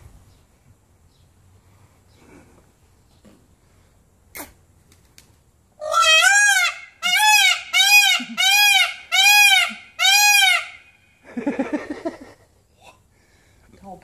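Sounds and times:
peacock calling: 5.8 - 11.3.

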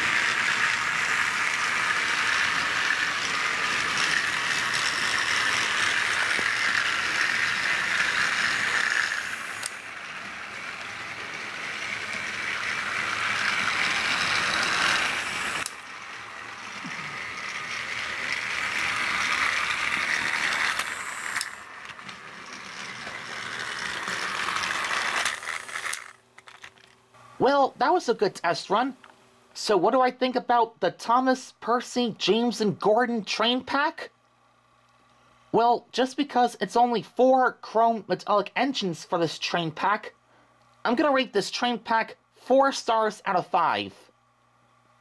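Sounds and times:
toy train motors whirring: 0.0 - 28.6.

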